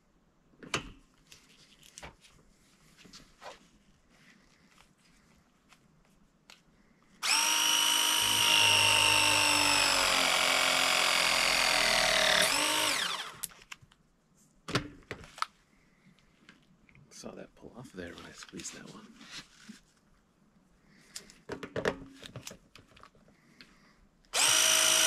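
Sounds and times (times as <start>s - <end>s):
press tool motor whining: 7.2s - 13.5s, 24.4s - 25.0s.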